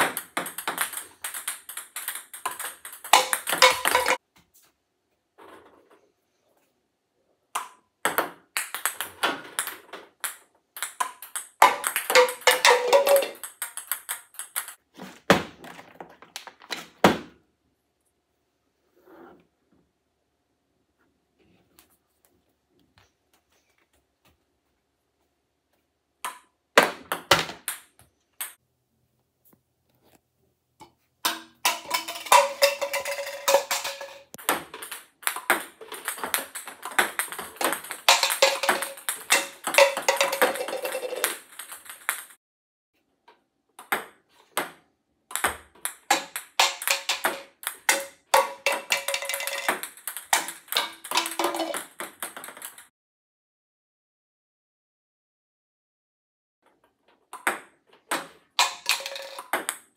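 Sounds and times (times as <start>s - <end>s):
table tennis balls bouncing: 0.0s - 4.2s, 7.5s - 17.4s, 26.2s - 28.6s, 30.8s - 42.4s, 43.7s - 52.9s, 57.1s - 59.9s.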